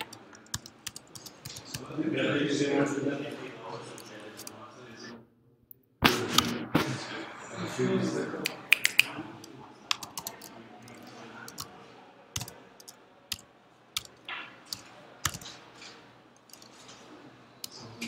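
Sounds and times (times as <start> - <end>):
computer keyboard typing: 0.0 - 1.9, 8.5 - 11.7, 12.4 - 15.6, 16.4 - 16.9.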